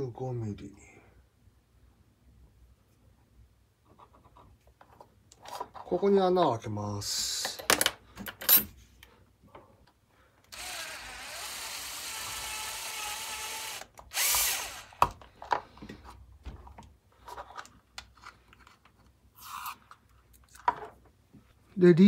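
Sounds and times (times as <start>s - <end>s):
power drill whining: 10.5s - 15.2s.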